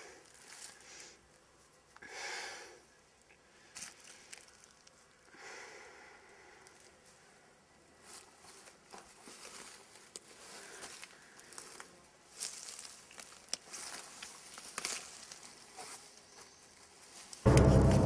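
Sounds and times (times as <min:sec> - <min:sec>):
footsteps through undergrowth: 0:00.2 - 0:00.8, 0:03.7 - 0:05.1, 0:08.0 - 0:17.5.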